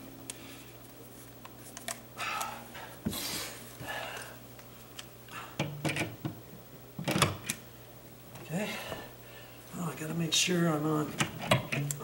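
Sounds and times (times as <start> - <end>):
rustling of handling: 0.6 - 2.1.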